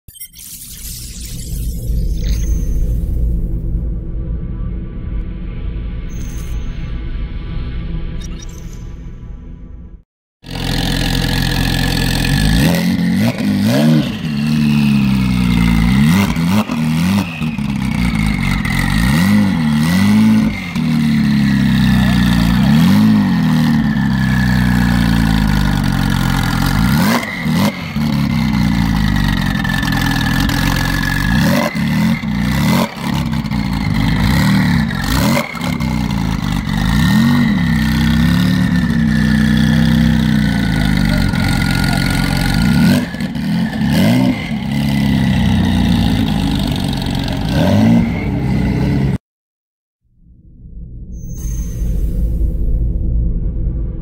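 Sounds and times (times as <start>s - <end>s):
exhaust cracks: 10.4s - 47.6s
car engine revving: 10.4s - 49.2s.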